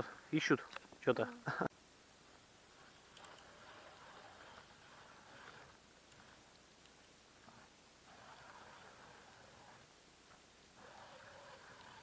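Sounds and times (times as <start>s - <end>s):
ice auger scraping through ice: 2.7s - 6.5s, 7.5s - 9.9s, 10.8s - 12.0s.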